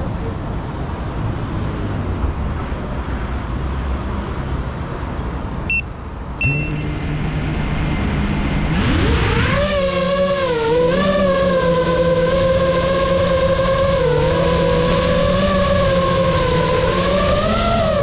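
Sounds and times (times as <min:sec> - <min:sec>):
short high beeps: 0:05.7 - 0:06.9
drone motors humming: 0:06.4 - 0:18.0.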